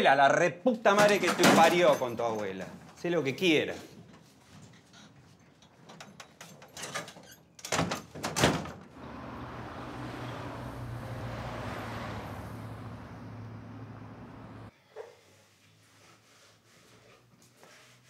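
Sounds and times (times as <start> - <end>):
metal door banging shut: 1.0 - 2.0, 6.8 - 8.9
low hum of city traffic: 8.3 - 14.7.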